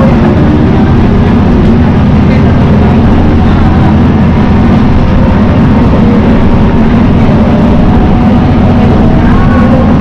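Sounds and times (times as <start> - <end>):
diesel railcar engine drone: 0.0 - 10.0.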